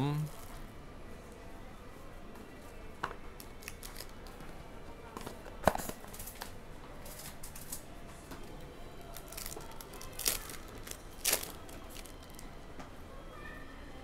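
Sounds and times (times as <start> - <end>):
wrapper ripping: 3.4 - 4.2, 9.1 - 12.4
wrapper rustling: 3.6 - 4.1, 9.1 - 12.4.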